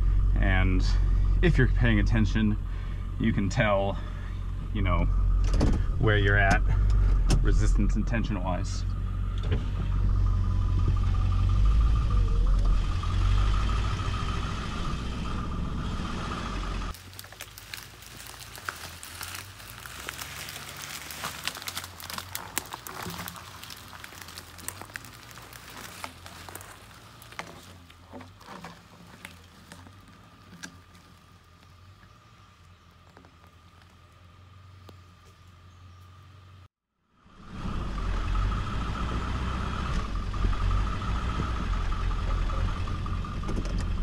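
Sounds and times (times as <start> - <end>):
diesel engine running under load: 0.0 - 36.6, 37.2 - 44.0
twigs and brush snapping: 16.9 - 34.2.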